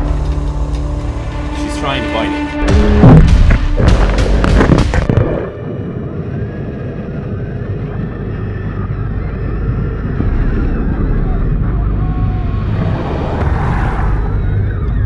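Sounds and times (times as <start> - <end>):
steady low rumble: 0.0 - 15.0
heavy booming hits: 2.6 - 5.4.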